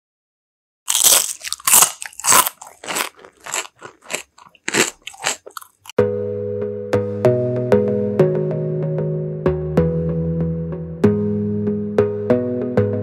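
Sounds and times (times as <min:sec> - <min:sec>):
crunchy chips being chewed: 0:00.9 - 0:06.0
synth chord music: 0:06.0 - 0:13.0.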